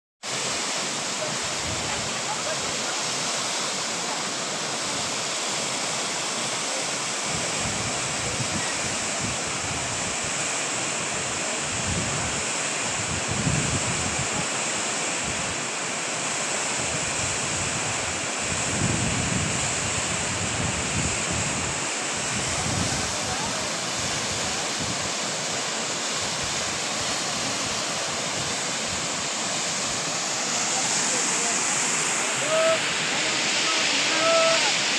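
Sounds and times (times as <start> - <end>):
waterfall rushing: 0.2 - 34.9
wind gusts on microphone: 1.3 - 2.6, 7.2 - 10.5, 11.6 - 14.5, 16.8 - 34.9.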